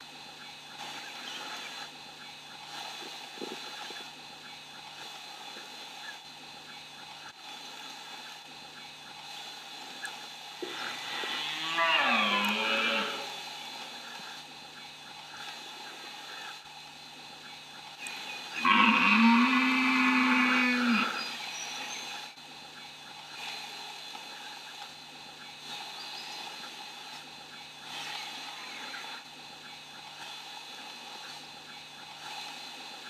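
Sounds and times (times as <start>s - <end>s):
deer stag roaring: 11.1s - 13.4s, 18.6s - 21.2s.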